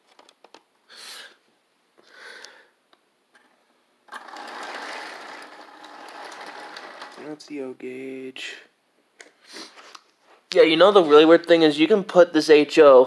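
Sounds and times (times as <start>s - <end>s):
model train whirring: 4.1s - 7.2s.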